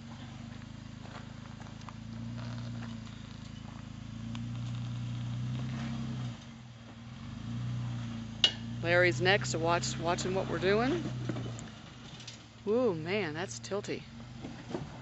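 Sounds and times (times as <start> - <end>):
car engine running at low revs: 0.0 - 15.0.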